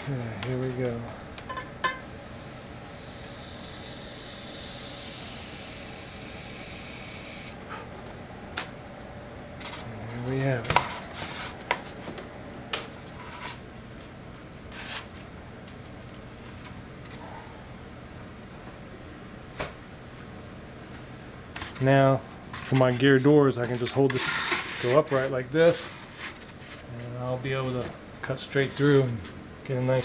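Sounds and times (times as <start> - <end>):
hot-wire cutting foam hissing: 2.0 - 7.6.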